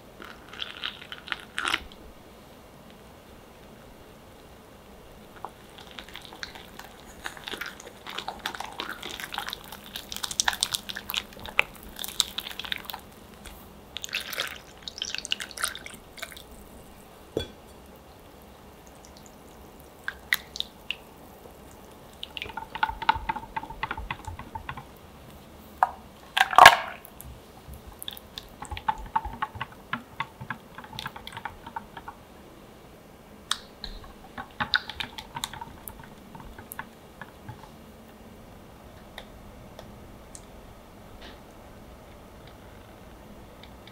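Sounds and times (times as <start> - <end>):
whisk beating batter in bowl: 21.6 - 25.0, 27.6 - 32.2, 33.9 - 37.5.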